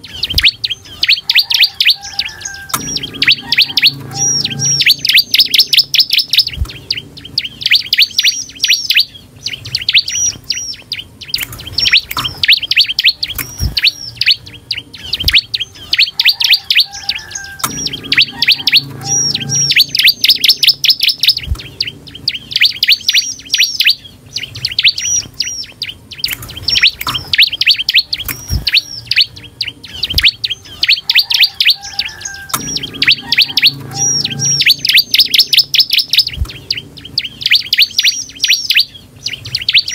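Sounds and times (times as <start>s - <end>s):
bird chirping rapidly: 0.0s - 39.9s.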